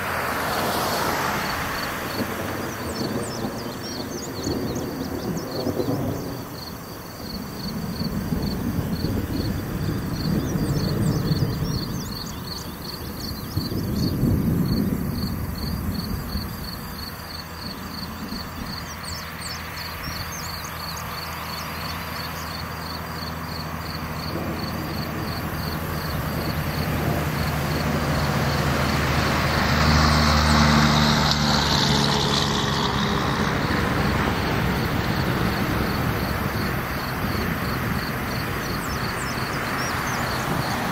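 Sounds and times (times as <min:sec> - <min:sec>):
vehicle engine passing: 0:00.0 - 0:03.6, 0:13.3 - 0:40.9
insects chirping: 0:00.0 - 0:40.9
thunder rumbling: 0:00.0 - 0:40.9.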